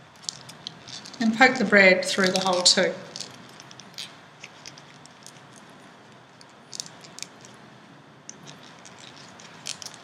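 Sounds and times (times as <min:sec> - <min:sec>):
tissue paper crinkling: 0:00.2 - 0:05.7, 0:08.4 - 0:10.0
paper crackling: 0:00.2 - 0:07.6, 0:08.3 - 0:10.0.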